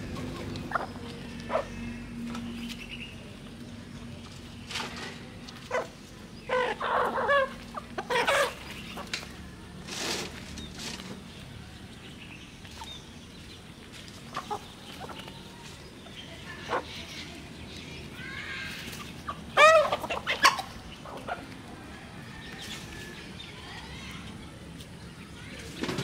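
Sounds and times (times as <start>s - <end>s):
chickens clucking: 0.0s - 23.5s
chicken squawking: 6.5s - 8.8s, 18.7s - 21.4s.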